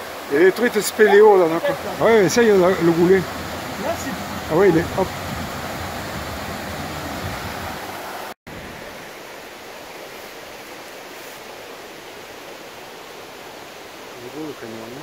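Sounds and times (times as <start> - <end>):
creek splashing over rocks: 0.0 - 15.0.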